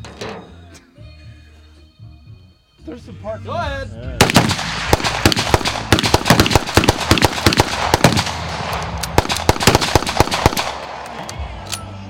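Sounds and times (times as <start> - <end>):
rapid overlapping gunshots: 4.2 - 11.1.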